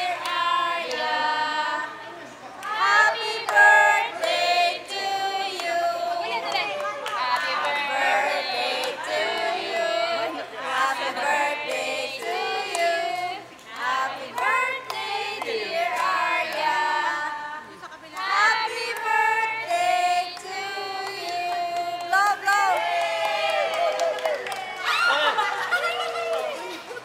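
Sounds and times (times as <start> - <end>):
group singing birthday song: 0.0 - 23.8.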